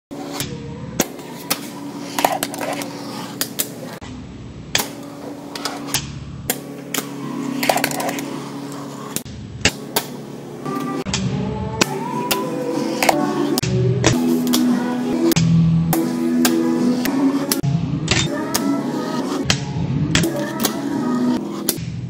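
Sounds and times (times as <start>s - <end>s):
background music: 10.6s - 22.0s.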